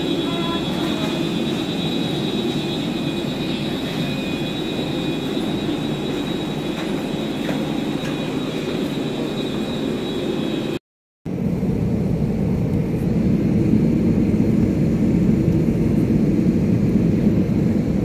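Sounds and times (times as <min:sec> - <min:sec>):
faint high whine: 0:00.0 - 0:10.8
airliner cabin low rush: 0:00.0 - 0:18.0.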